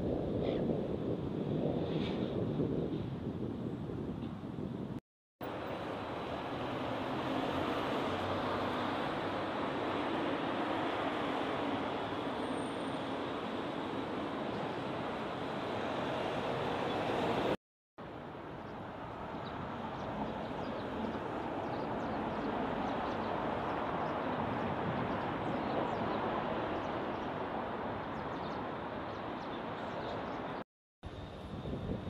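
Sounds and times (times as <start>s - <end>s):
road vehicles passing: 5.4s - 17.6s, 18.7s - 30.6s.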